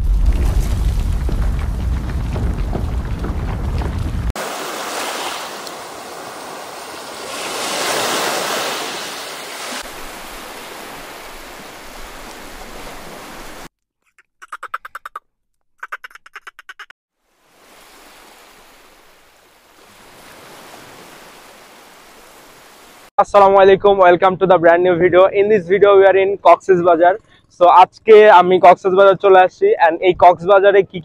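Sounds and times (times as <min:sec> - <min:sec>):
sea waves washing onto shore: 0:00.0 - 0:13.7, 0:17.3 - 0:23.1.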